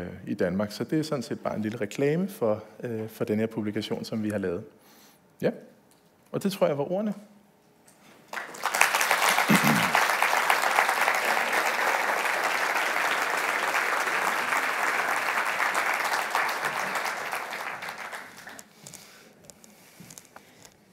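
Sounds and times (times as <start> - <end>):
audience applauding: 8.3 - 18.7.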